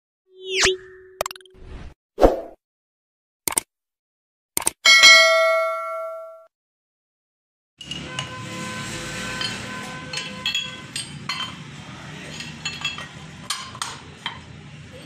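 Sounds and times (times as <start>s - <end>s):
steel parts clinking: 9.4s - 14.0s.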